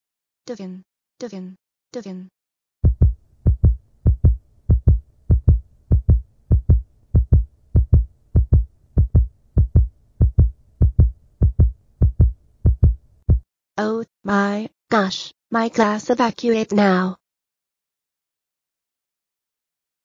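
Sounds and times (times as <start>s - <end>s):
heartbeat thumps: 2.8s - 13.5s.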